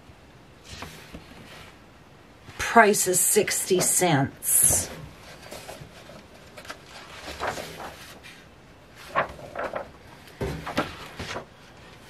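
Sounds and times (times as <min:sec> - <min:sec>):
pages being leafed through: 0:05.2 - 0:12.0.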